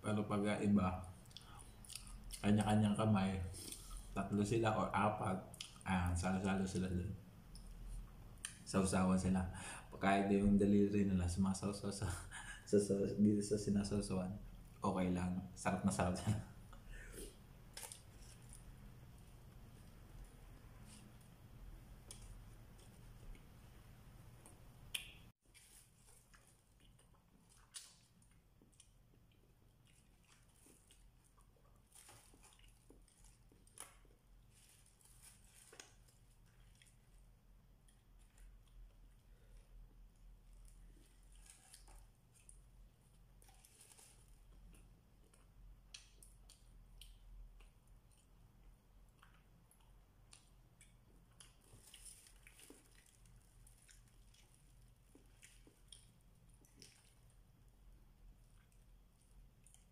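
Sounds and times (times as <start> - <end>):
chewing: 1.2 - 2.4, 24.4 - 37.2, 40.5 - 57.7, 58.3 - 59.9
aluminium foil crinkling: 29.9 - 37.1, 40.7 - 42.6, 51.4 - 57.4
foil and plastic bag crinkling: 31.8 - 37.1.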